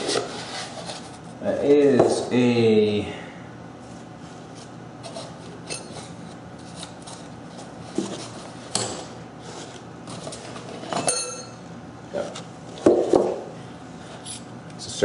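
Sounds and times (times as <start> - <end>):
short metallic clink: 11.0 - 11.6.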